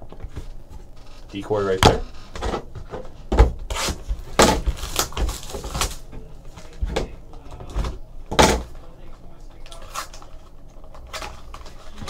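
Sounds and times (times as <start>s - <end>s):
wrapper and cardboard rustling: 0.4s - 6.8s.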